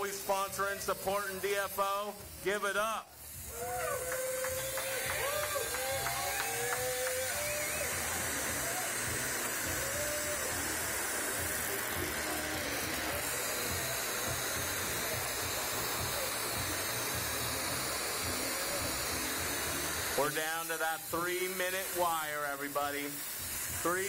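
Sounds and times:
bench torches hissing: 0.0 - 24.0
ventilation: 0.0 - 24.0
faint voices: 3.4 - 20.3.

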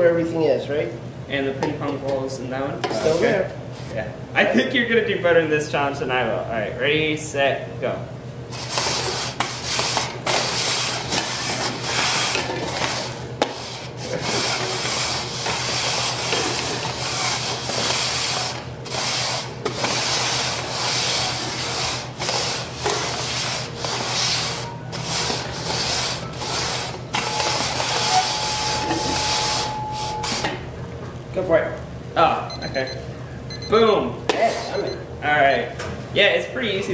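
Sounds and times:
plastic cups scraping on wooden table: 8.6 - 30.4
steady high tone: 27.1 - 30.9.

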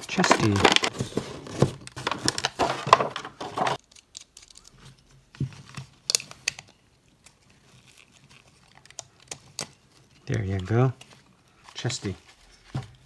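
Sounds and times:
plastic packaging crinkling: 0.0 - 4.9.

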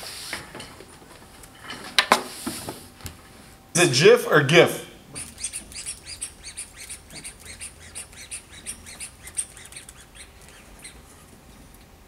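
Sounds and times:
rubber squeeze toy squeaks: 5.1 - 11.3.

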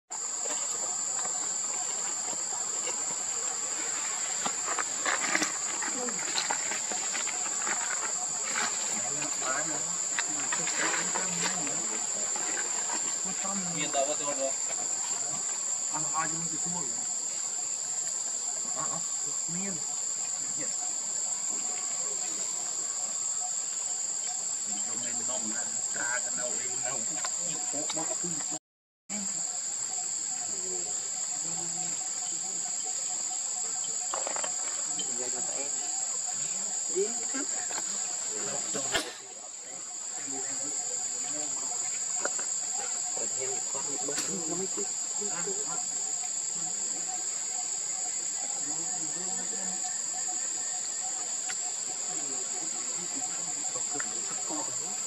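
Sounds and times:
insects droning: 0.1 - 55.0.

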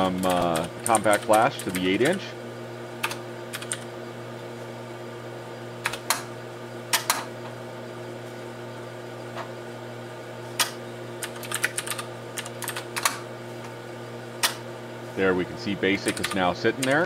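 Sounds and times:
electrical hum: 0.0 - 17.0
computer keyboard typing: 0.1 - 2.2, 3.0 - 3.9, 5.8 - 6.2, 10.6 - 13.2, 16.0 - 17.0.

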